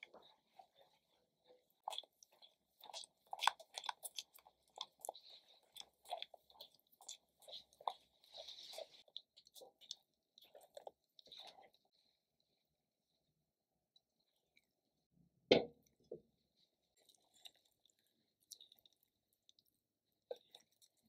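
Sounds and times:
spatula squelching and scraping pan: 0:00.1 - 0:09.4.

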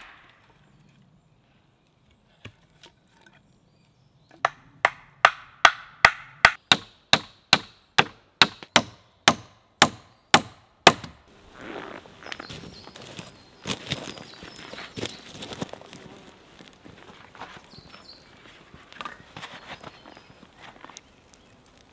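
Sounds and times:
tool striking wood: 0:04.4 - 0:11.2.

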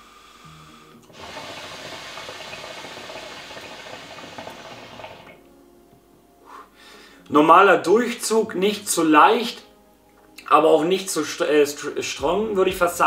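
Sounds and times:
water bubbling in a hookah: 0:01.0 - 0:05.4.

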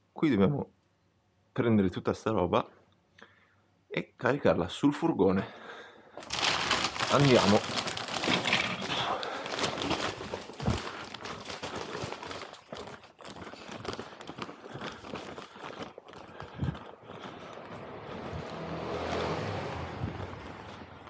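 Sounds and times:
plastic rustling: 0:06.2 - 0:19.2
low vehicle rumble: 0:16.6 - 0:21.0.

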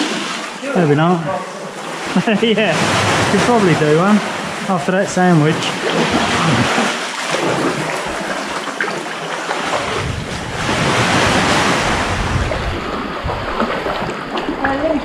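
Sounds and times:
water splashing around kayak: 0:00.0 - 0:15.0
wind rumble on microphone: 0:09.7 - 0:15.0.

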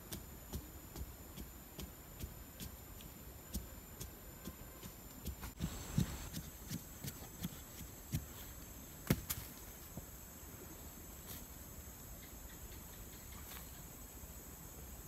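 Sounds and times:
insect drone: 0:00.0 - 0:15.0
soil scraping by hand: 0:04.4 - 0:09.9
stick thudding into earth: 0:09.0 - 0:09.7.

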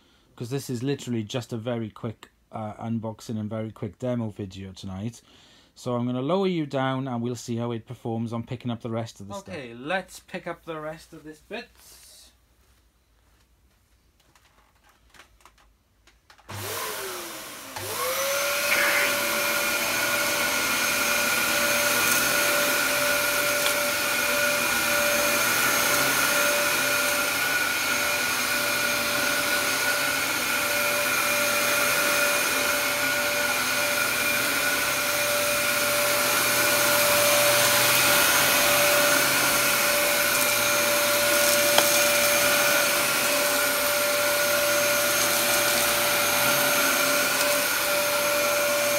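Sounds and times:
vacuum cleaner motor whining: 0:16.4 - 0:48.9
vacuum on carpet with dry bits: 0:16.4 - 0:48.9.

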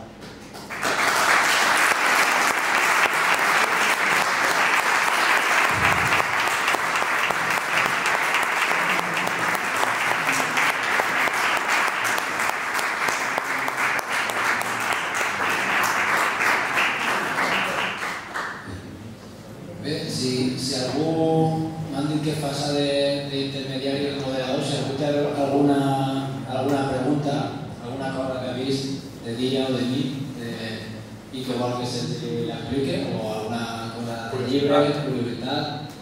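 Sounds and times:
audience applauding: 0:00.5 - 0:18.7.

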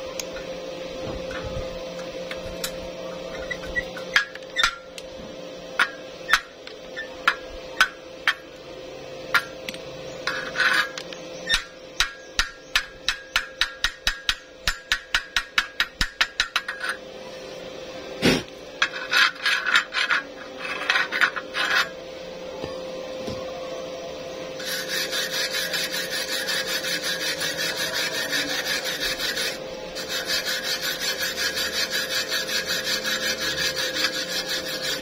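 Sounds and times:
wire brush scrubbing metal: 0:10.2 - 0:17.0, 0:18.2 - 0:22.0, 0:24.6 - 0:35.0
chipping hammer tapping steel: 0:10.9 - 0:16.9.

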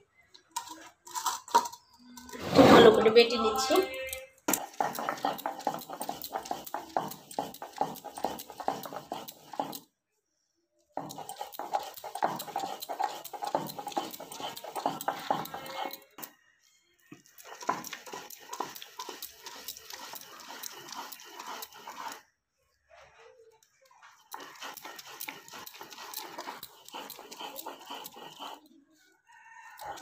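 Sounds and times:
stone scraping on stone: 0:00.8 - 0:03.6, 0:04.5 - 0:09.8, 0:11.0 - 0:16.3, 0:17.2 - 0:22.2, 0:24.2 - 0:28.8.

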